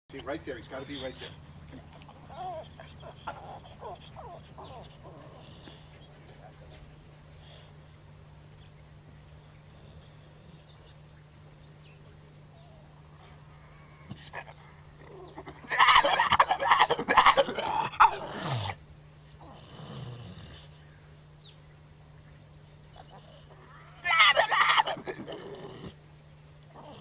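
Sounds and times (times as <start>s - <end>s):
dog growling roar: 1.7s - 6.4s, 14.0s - 18.8s, 19.4s - 20.8s, 23.0s - 26.1s, 26.7s - 27.0s.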